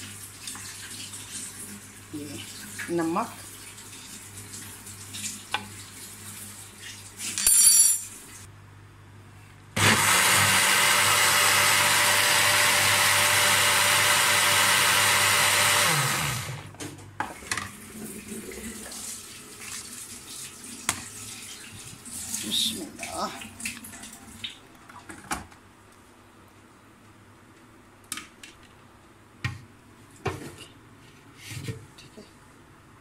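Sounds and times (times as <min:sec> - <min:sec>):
blender grinding: 0:09.8 - 0:16.7.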